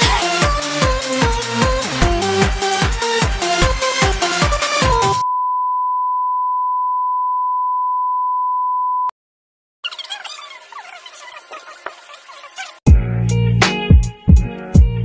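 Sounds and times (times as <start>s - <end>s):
electronic dance music: 0.0s - 5.2s.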